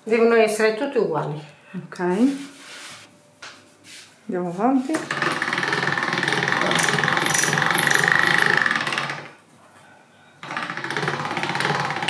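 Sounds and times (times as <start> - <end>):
pasta machine rollers rattling: 5.0 - 9.4, 10.4 - 12.0.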